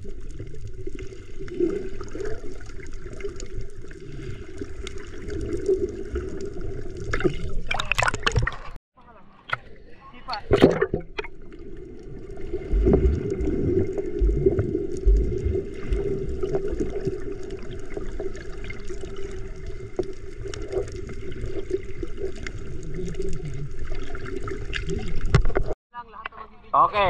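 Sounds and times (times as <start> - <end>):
water sloshing and gurgling: 0.0 - 8.8, 9.4 - 25.8
low thumps: 12.6 - 16.1.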